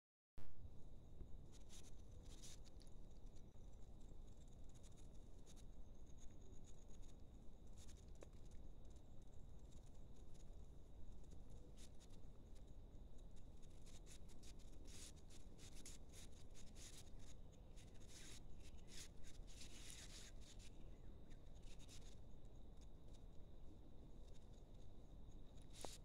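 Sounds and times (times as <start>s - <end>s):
faint scratching and rustling: 0.8s - 26.0s.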